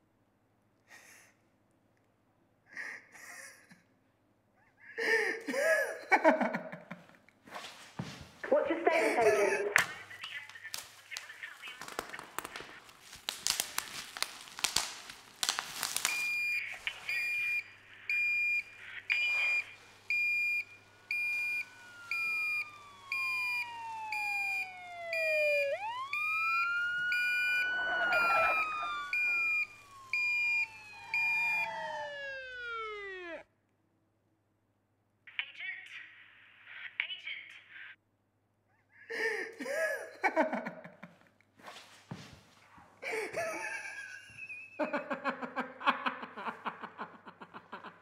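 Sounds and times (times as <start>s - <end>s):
loud crackling rustle: 10.0s - 33.4s
high electronic alarm beeps: 16.1s - 33.4s
siren sweeping in pitch: 16.1s - 33.5s.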